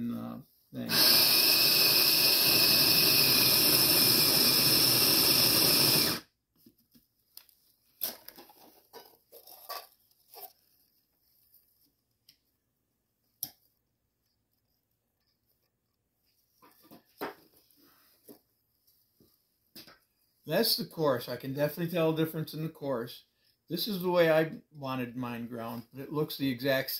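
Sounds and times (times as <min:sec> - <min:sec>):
electric coffee grinder grinding: 0:00.9 - 0:06.2.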